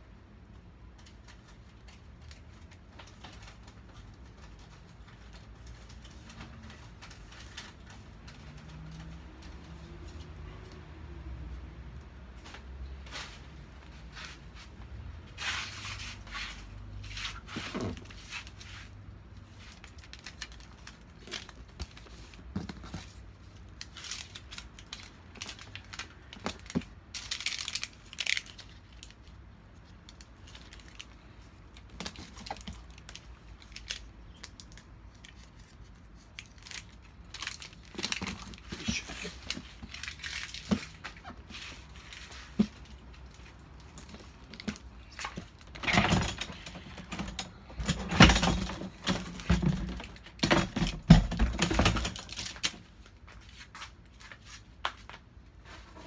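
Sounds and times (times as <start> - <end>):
plastic film crinkling: 15.4 - 50.9, 51.6 - 54.8.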